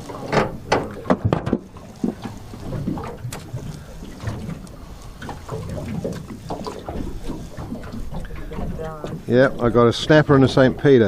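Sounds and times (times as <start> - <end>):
water slapping boat hull: 0.0 - 11.0
sharp knocks on boat: 0.2 - 1.7.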